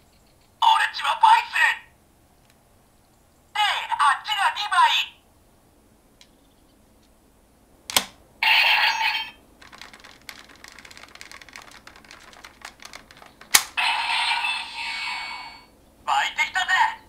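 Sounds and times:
electronic toy sound: 8.4s - 9.4s
plastic toy click: 13.4s - 13.8s.

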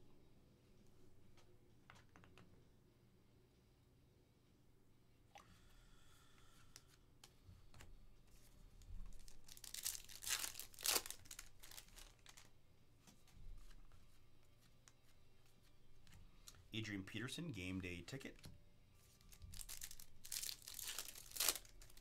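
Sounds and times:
foil wrapper tearing and crinkling: 9.1s - 12.5s, 19.2s - 22.0s.

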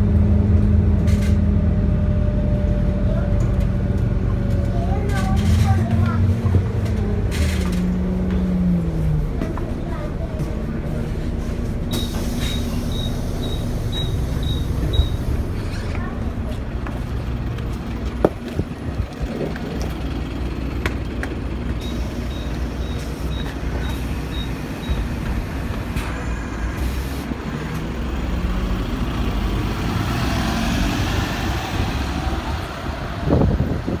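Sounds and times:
bus diesel engine running: 0.0s - 34.0s
door warning beeps: 11.9s - 15.2s, 21.8s - 25.1s
air hissing: 11.9s - 15.3s.

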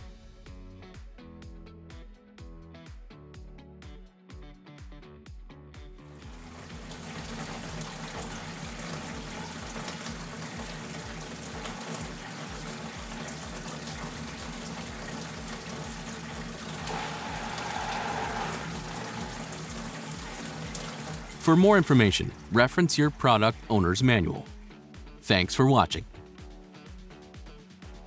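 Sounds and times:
faucet water running into sink: 6.2s - 22.5s.

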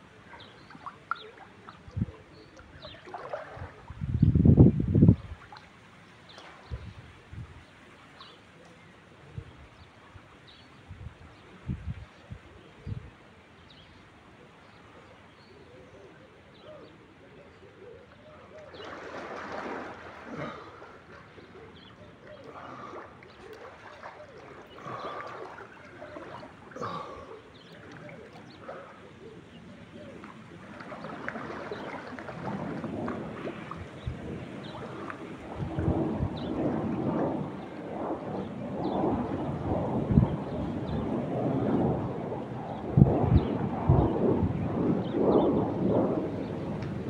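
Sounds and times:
pool water splashing: 0.0s - 4.1s, 5.1s - 9.1s, 16.4s - 43.0s.

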